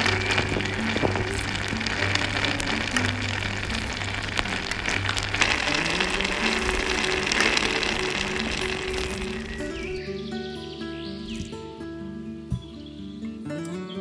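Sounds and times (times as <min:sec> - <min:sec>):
water boiling with sizzling hiss: 0:00.0 - 0:10.0.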